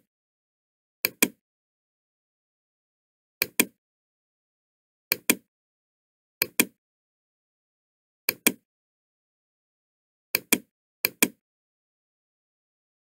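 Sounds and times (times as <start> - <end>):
mouse button clicking: 8.3 - 8.6.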